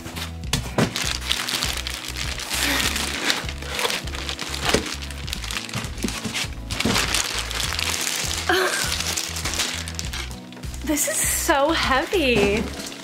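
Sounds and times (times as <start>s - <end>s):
background music with bass line: 0.0s - 13.0s
plastic bag crinkling: 0.9s - 10.8s, 12.2s - 13.0s.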